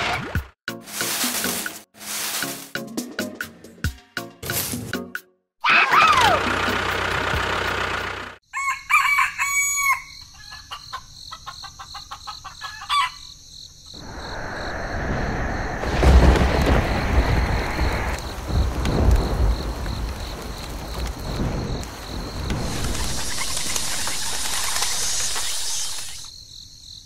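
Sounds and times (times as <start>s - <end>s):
rooster crowing: 8.5s - 13.3s.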